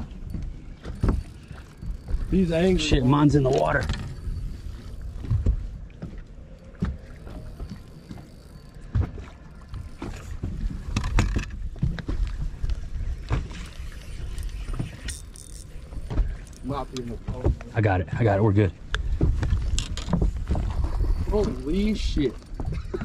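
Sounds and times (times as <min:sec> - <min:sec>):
knocks and thumps on boat deck: 0:05.1 - 0:12.6, 0:17.0 - 0:21.5.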